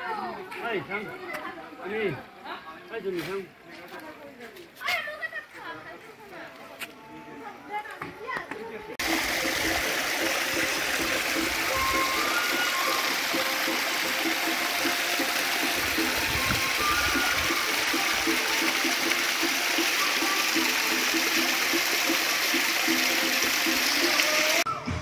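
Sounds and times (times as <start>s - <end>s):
faint background music: 0.0s - 10.0s
waterfall splashing over boulders: 9.0s - 24.7s.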